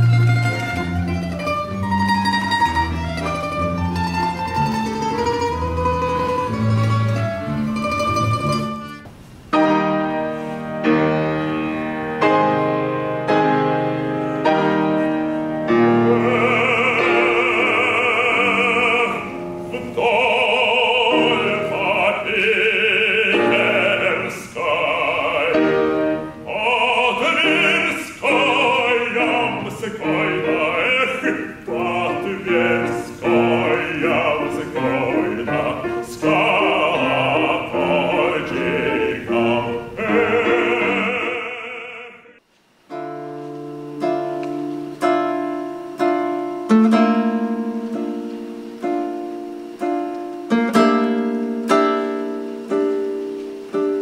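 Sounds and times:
grand piano: 0.0 - 54.0
operatic bass voice singing: 16.0 - 42.4.

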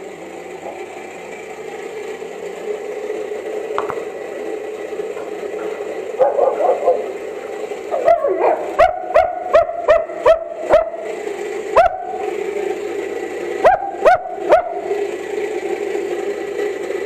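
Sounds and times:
dog barking: 6.2 - 7.1, 7.9 - 11.0, 13.6 - 14.8.

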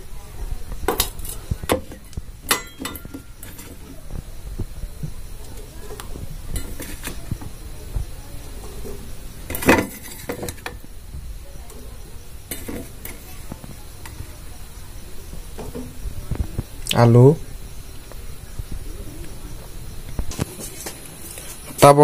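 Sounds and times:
potato chunks clattering in pan: 0.8 - 4.0, 6.0 - 7.6, 8.6 - 10.8, 12.5 - 14.2.

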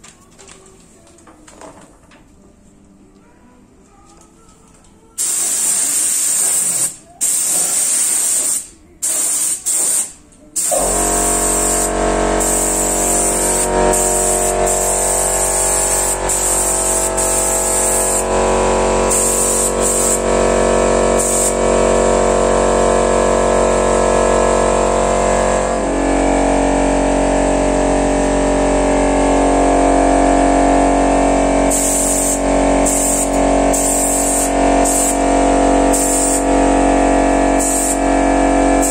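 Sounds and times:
steady multi-tone hum: 0.0 - 38.9
spray gun hissing: 5.2 - 18.4, 19.0 - 20.3, 21.2 - 21.6, 31.7 - 36.6, 37.5 - 38.1.

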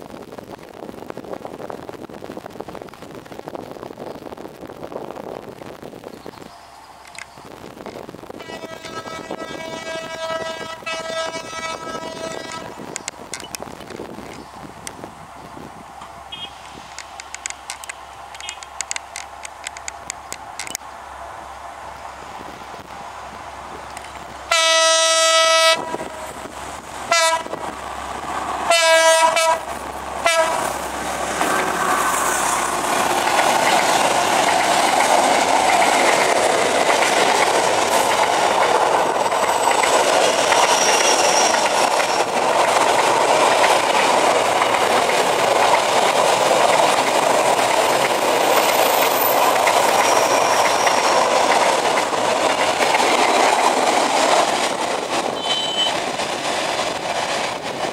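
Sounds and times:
freight train rolling past: 0.0 - 57.9
locomotive horn blasts: 8.4 - 12.8, 16.3 - 16.6, 24.5 - 26.3, 27.1 - 27.6, 28.7 - 30.6, 55.4 - 56.0.

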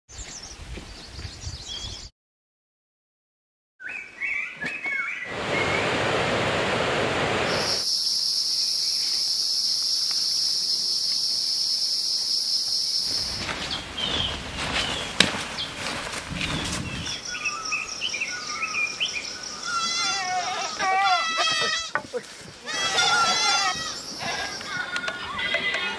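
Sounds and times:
bird chirps: 3.8 - 5.3, 7.5 - 15.7, 16.4 - 19.9
rushing noise: 5.3 - 9.1
high insect buzz: 7.5 - 13.8.

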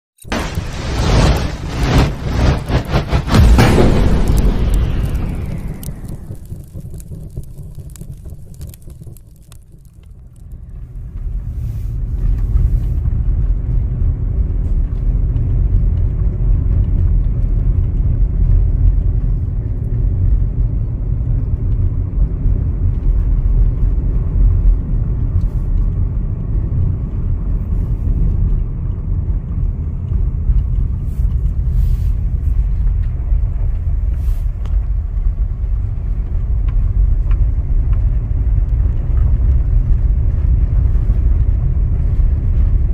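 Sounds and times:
car road rumble inside cabin: 10.3 - 42.9.

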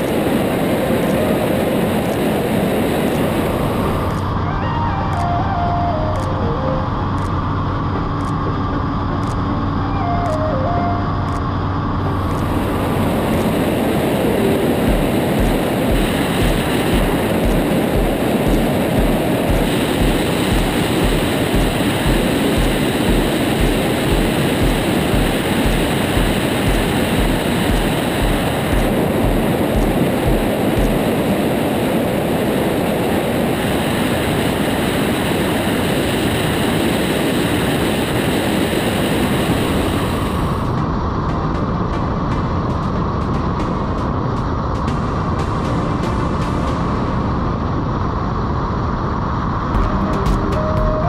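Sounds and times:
wind rush on microphone: 0.0 - 5.0, 11.8 - 51.0
low regular pulse: 0.0 - 31.9
aircraft engine and propeller drone: 0.0 - 51.0.

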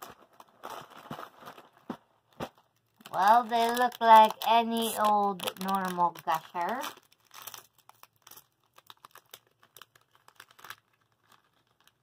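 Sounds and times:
foil snack pouch crinkling: 2.6 - 12.0.

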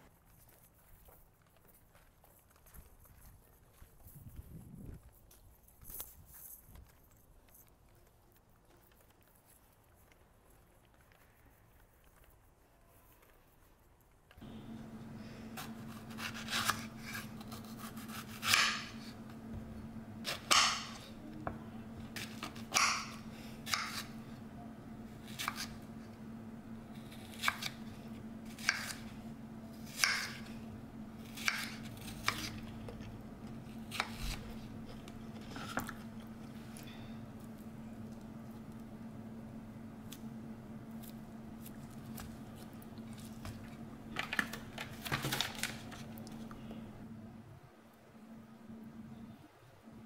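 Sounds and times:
low hum: 14.4 - 50.0
knife cutting on wooden board: 14.8 - 21.1, 22.1 - 24.2, 25.2 - 25.9, 26.9 - 29.1, 29.7 - 30.6, 31.2 - 36.2.

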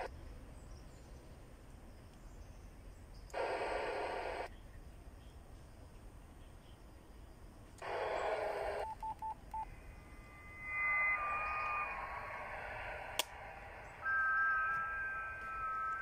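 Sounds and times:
electronic tones over hiss: 3.2 - 4.5, 7.8 - 16.0
radio static: 3.4 - 4.5, 7.8 - 8.8, 9.8 - 16.0
short beeps: 8.8 - 16.0
sharp click: 13.1 - 13.5
two-note tone: 14.0 - 16.0.

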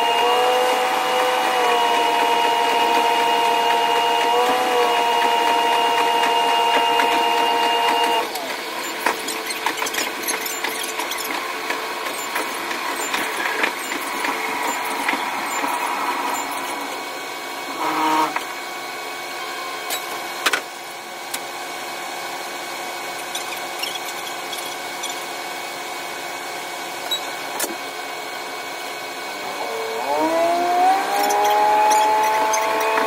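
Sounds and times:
high drill-like engine whine: 0.0 - 20.2, 28.4 - 33.0.

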